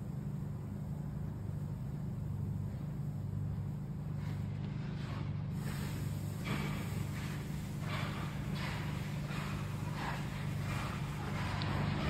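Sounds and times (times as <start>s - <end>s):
low hum of room noise: 0.0s - 12.0s.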